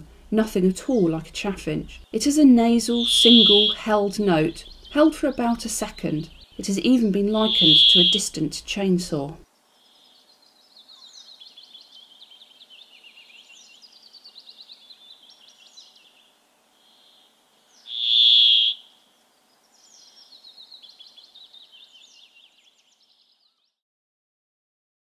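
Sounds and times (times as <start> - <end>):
nasal buzzing bird note: 2.8 - 5.4, 7.2 - 8.4, 16.9 - 19.0
fast bird twittering: 2.9 - 5.2, 7.3 - 8.4, 17.8 - 18.9.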